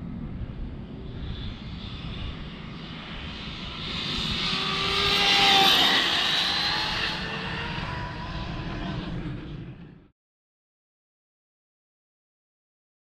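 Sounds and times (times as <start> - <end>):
rc car motor whining: 3.7 - 9.0.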